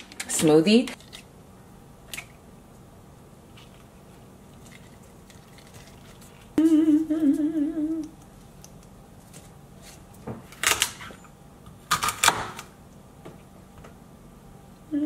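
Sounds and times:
woman humming: 6.6 - 8.2.

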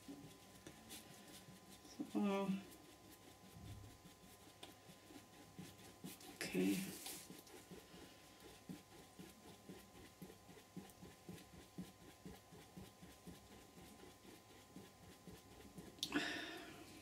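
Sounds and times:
soft ticks and rustles of canvas: 5.6 - 16.0.

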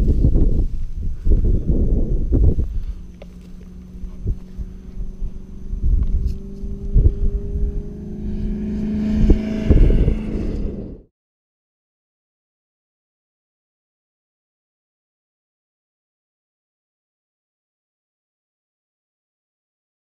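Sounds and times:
off-road vehicle engine running: 0.0 - 11.1
wind buffeting microphone: 0.0 - 11.1.

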